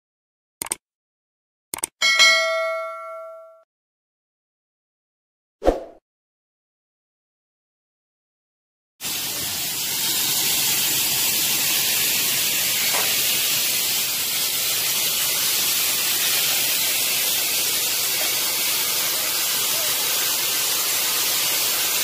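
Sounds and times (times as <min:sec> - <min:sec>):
steady loud hiss: 0:09.0 - 0:22.0.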